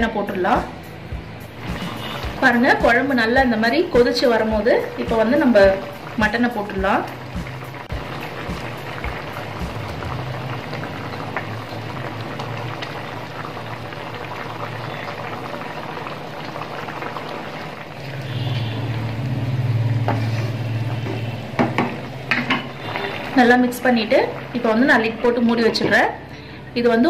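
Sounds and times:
gravy boiling in a pan: 1.4 - 27.0
wooden spatula knocking pan: 21.0 - 22.8.

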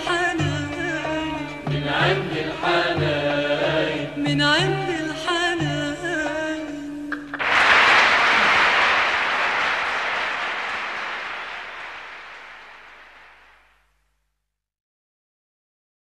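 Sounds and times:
audience applauding: 7.3 - 13.7.

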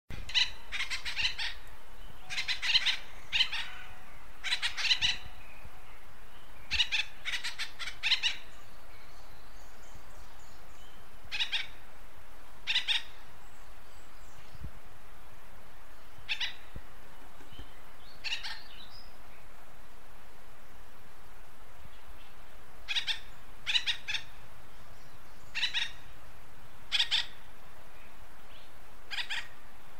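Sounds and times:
background hiss: 0.1 - 29.9
woodpecker calling: 0.2 - 5.6, 6.4 - 9.2, 10.8 - 11.8, 12.6 - 13.7, 16.2 - 16.7, 17.4 - 19.1, 22.2 - 26.2, 26.9 - 27.5, 28.5 - 29.6.

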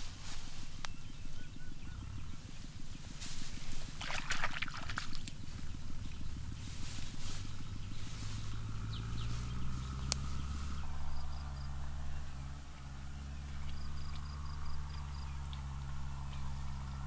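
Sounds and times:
rustling through tall grass: 0.0 - 17.0
steady low hum: 0.0 - 17.0.

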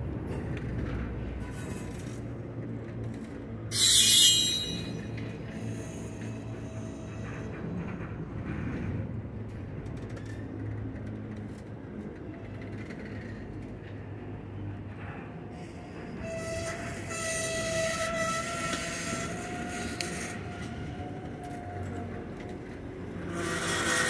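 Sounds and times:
diesel locomotive rumbling: 0.0 - 24.0
train air horn blast: 3.7 - 5.1.

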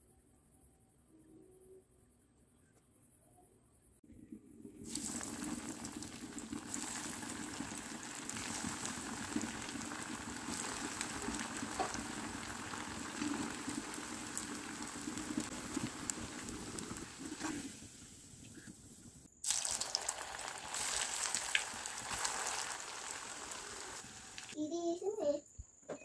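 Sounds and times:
hot oil sizzling and crackling: 4.8 - 24.6.

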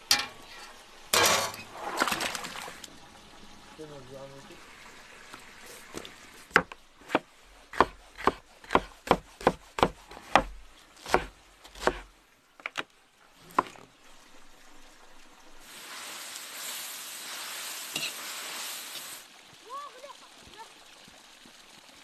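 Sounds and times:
knife chopping on wooden board: 6.5 - 12.0
vegetables sizzling in a pan: 13.4 - 21.8.

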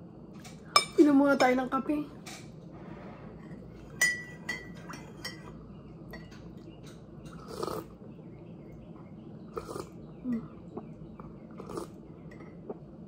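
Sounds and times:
spoon clinking on ceramic mug: 4.0 - 5.5.

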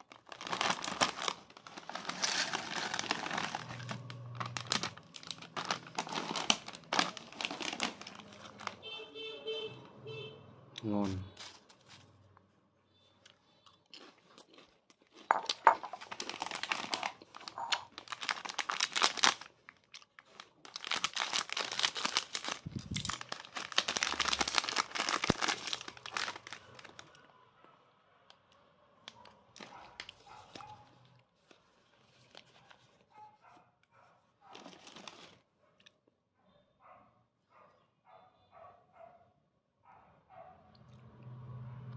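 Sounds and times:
plastic wrapper crinkling and tearing: 0.0 - 8.8, 15.0 - 27.2, 29.2 - 33.2, 34.5 - 35.5.

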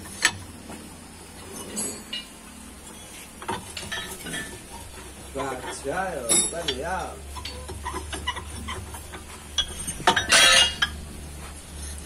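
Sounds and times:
steady low hum: 0.0 - 12.0
metal scraping on metal: 1.4 - 12.0
metal clinks: 3.7 - 11.0.

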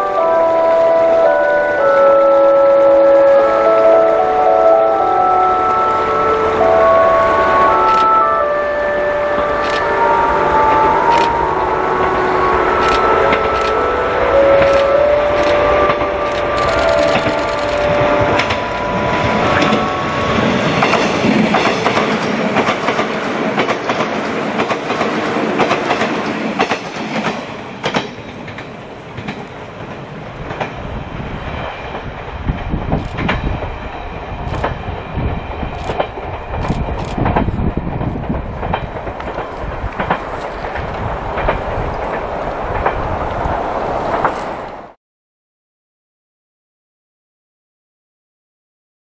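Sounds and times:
train passing: 0.0 - 45.0
wheels clicking over rail joints: 20.4 - 30.8, 35.6 - 43.5.

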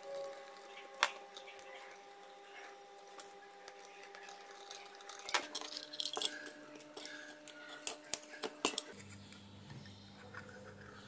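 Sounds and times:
plastic rustling: 0.0 - 9.2
plastic parts clicking: 3.7 - 8.9.

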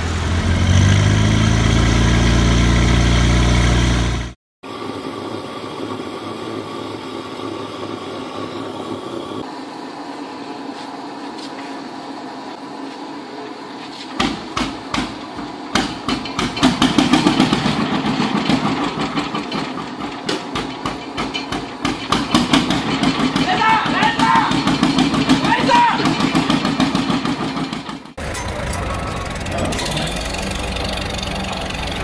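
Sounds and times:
steady mechanical hum: 4.7 - 26.6
tractor engine knocking: 14.6 - 32.0.

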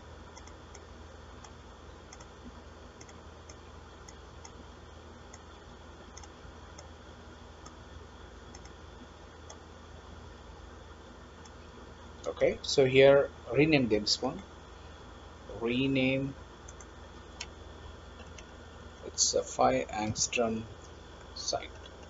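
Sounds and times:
low hum and hiss: 0.0 - 22.0
computer mouse clicking: 0.3 - 2.4, 3.0 - 4.6, 6.1 - 6.9, 8.5 - 8.8, 16.6 - 17.5, 18.2 - 18.5.

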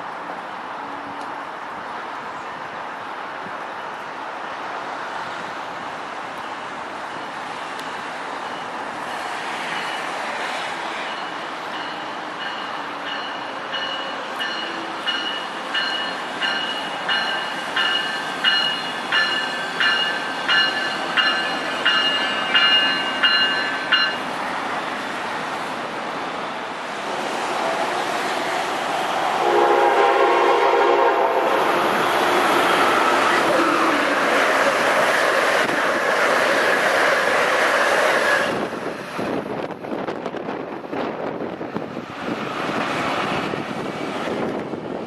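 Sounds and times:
train rumbling: 0.0 - 45.0
locomotive bell ringing: 11.1 - 24.3
train horn steady tones: 29.2 - 34.4.

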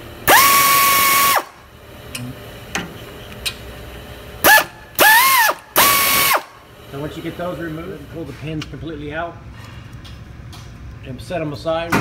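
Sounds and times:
power tool motor whining: 0.2 - 1.5, 4.4 - 6.5.

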